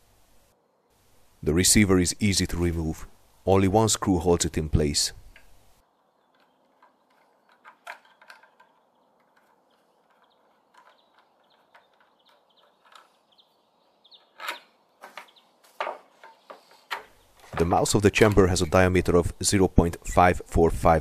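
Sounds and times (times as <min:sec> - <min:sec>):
metal parts knocking: 0:05.3 - 0:18.7
small metal clicks and scrapes: 0:06.2 - 0:15.4.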